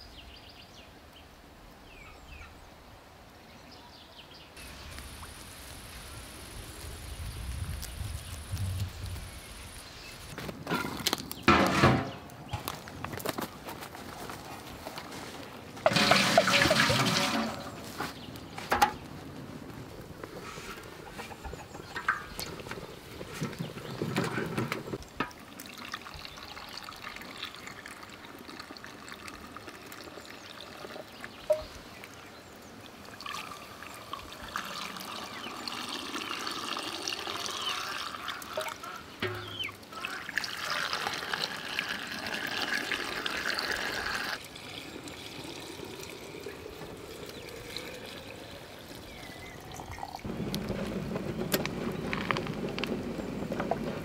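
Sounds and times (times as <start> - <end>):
liquid pouring into glass jars: 15.9 - 17.8, 25.2 - 32.2, 32.9 - 50.3.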